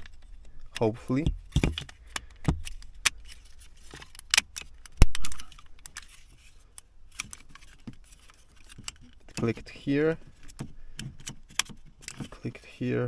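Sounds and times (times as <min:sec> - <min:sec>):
hard plastic clicks and rattles: 0:10.3 - 0:12.4.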